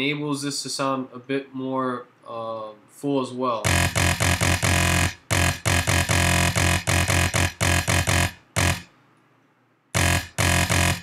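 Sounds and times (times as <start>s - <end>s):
distorted synth bass notes: 3.6s - 8.9s, 10.0s - 11.0s.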